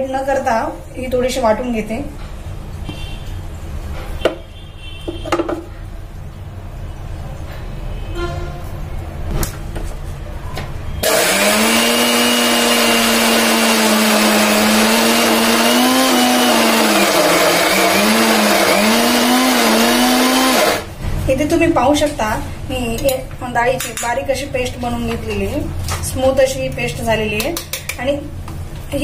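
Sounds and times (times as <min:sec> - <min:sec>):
electric grinder grinding paste: 0:11.0 - 0:20.9.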